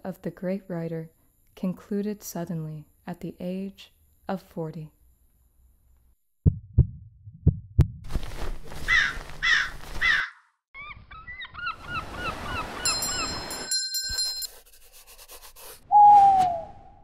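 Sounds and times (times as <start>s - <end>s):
heartbeat thumps: 6.4s - 8.1s
raven caws: 8.8s - 10.5s.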